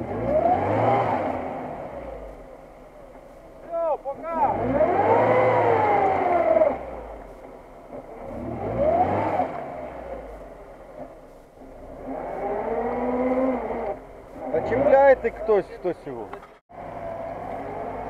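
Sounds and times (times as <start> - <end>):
car engine revving hard: 0.0 - 2.4, 4.2 - 7.2, 8.0 - 10.5, 11.6 - 15.6.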